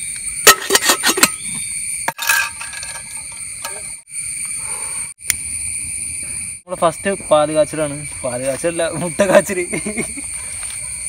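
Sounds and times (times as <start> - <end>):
forest insects droning: 0.0 - 11.0
metal kettle clinking: 2.2 - 3.8.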